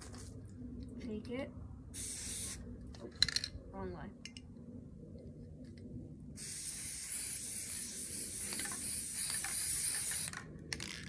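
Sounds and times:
aerosol spray can hissing: 0:06.4 - 0:10.3.

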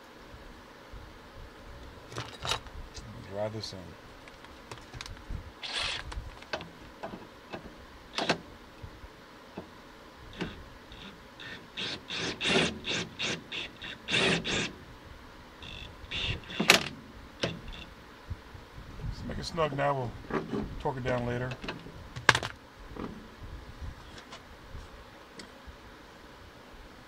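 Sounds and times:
impact wrench bursts: 0:05.6 - 0:06.2, 0:08.1 - 0:08.4, 0:10.4 - 0:14.8, 0:15.6 - 0:17.9.

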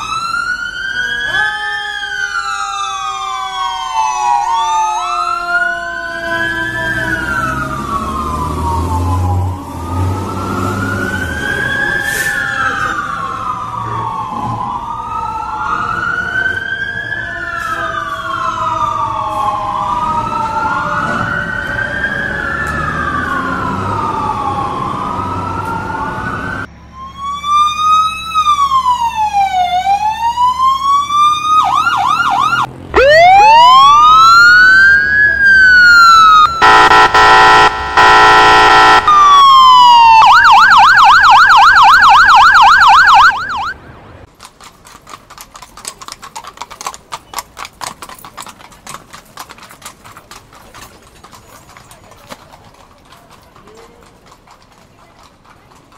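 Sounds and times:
wailing sirens: 0:00.0 - 0:44.3
horse hooves clip-clopping: 0:44.3 - 0:55.9.

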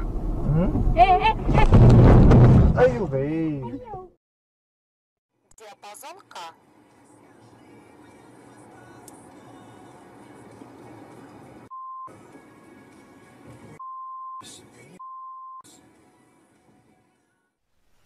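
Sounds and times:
censor bleeps: 0:11.7 - 0:12.1, 0:13.8 - 0:15.7.

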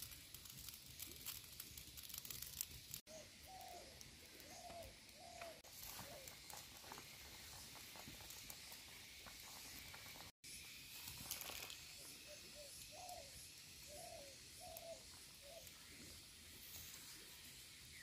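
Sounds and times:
wood fire crackling: 0:00.0 - 0:18.0
bird calls: 0:03.1 - 0:06.6, 0:11.9 - 0:16.0.

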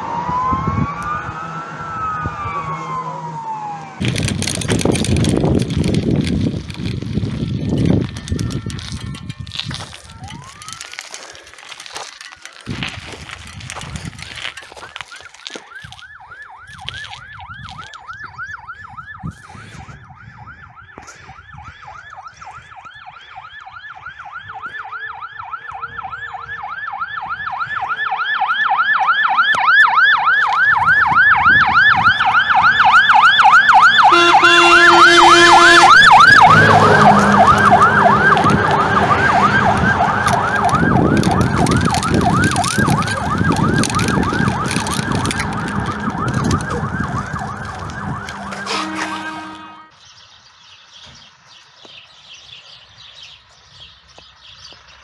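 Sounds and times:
truck engine rumble: 0:00.0 - 0:19.4, 0:29.9 - 0:51.5
fire engine siren yelping: 0:00.0 - 0:49.9
truck horn: 0:34.0 - 0:40.8, 0:47.5 - 0:50.0.

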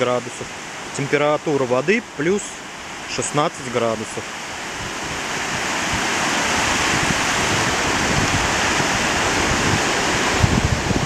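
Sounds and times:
sea waves breaking on beach: 0:00.0 - 0:11.0
wind buffeting microphone: 0:04.4 - 0:11.0.

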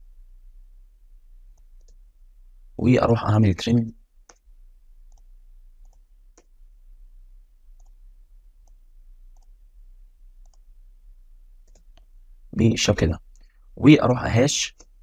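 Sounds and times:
faint computer mouse clicks: 0:01.5 - 0:02.0, 0:04.3 - 0:04.5, 0:05.1 - 0:06.5, 0:07.8 - 0:08.0, 0:08.6 - 0:09.6, 0:10.4 - 0:10.7, 0:11.6 - 0:12.1, 0:14.8 - 0:15.0.

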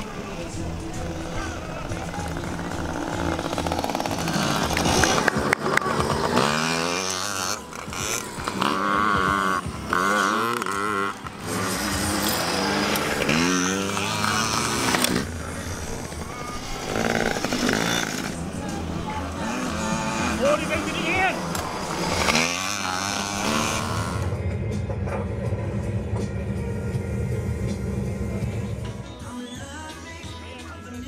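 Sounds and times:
two-stroke minibike engines revving: 0:00.0 - 0:24.4
background music: 0:00.0 - 0:31.0.

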